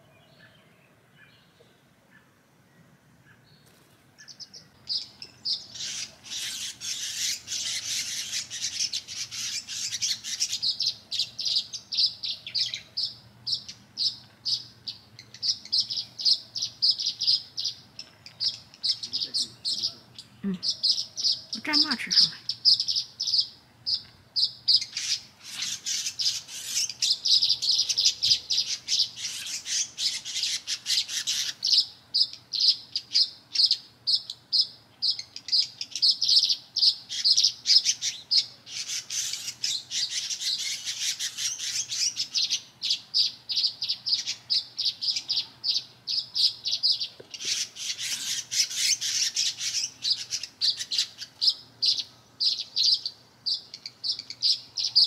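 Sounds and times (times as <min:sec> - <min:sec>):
small birds chirping: 0:00.0 - 0:55.0.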